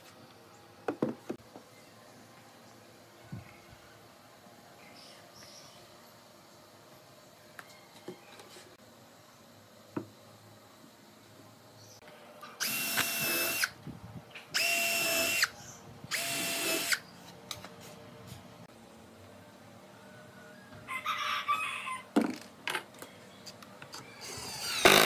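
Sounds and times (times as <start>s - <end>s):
cordless drill whining: 12.6s - 13.7s, 14.6s - 15.5s, 16.1s - 17.0s, 24.4s - 25.0s.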